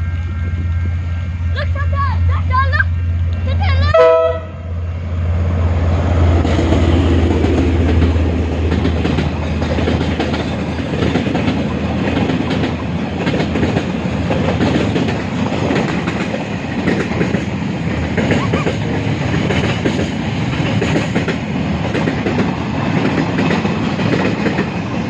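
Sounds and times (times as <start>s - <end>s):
diesel locomotive engine drone: 0.0s - 25.0s
train wagons clattering over rails: 5.9s - 25.0s.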